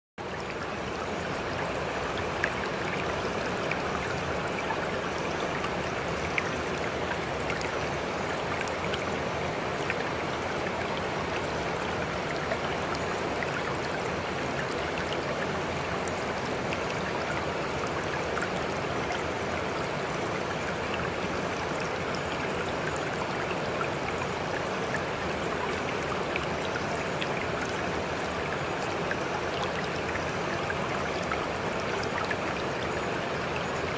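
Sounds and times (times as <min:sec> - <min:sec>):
rushing water: 0:00.2 - 0:33.9.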